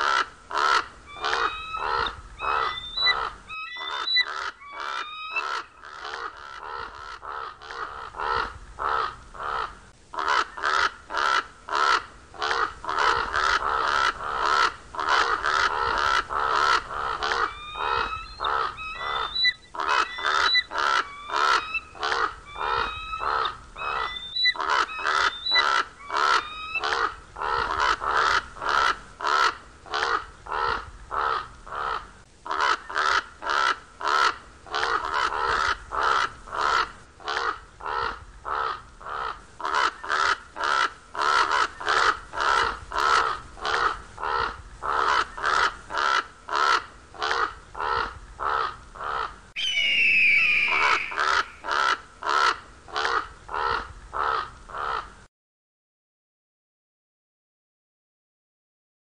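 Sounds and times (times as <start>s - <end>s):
crows cawing harshly: 0.0s - 55.1s
thin high bird calls: 0.6s - 8.0s, 13.0s - 28.9s, 49.6s - 52.0s.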